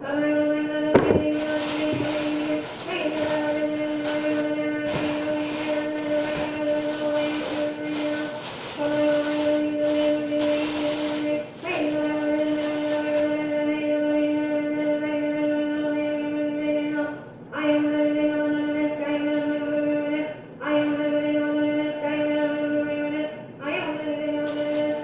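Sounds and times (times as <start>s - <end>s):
plastic bag rustling: 1.0s - 16.8s, 24.4s - 25.0s.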